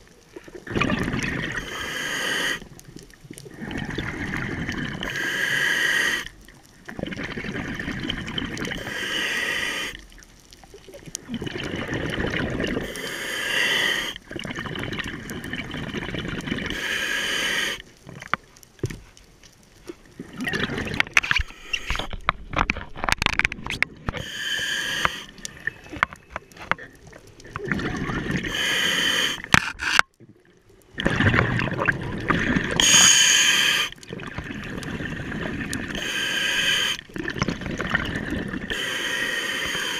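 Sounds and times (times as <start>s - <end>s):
exhaust bubbles bubbling: 0.6s - 1.6s, 11.3s - 12.8s, 30.9s - 32.8s
regulator hissing inhalations: 1.6s - 2.6s, 5.0s - 6.3s, 8.8s - 10.0s, 12.8s - 14.2s, 16.7s - 17.8s, 21.4s - 22.1s, 24.2s - 25.6s, 28.5s - 29.5s, 32.8s - 34.0s, 36.0s - 37.0s, 38.7s - 39.9s.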